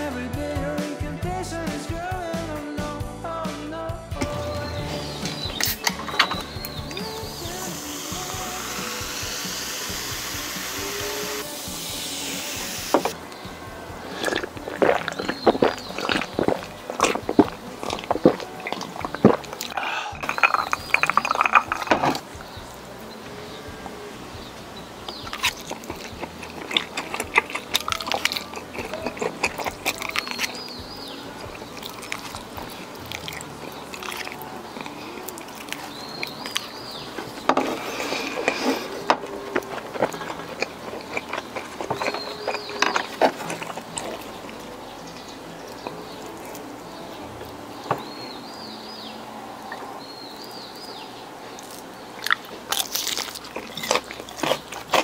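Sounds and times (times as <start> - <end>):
person crunching and chewing: 5.2 - 13.3, 14.0 - 22.3, 25.1 - 48.1, 51.5 - 55.0.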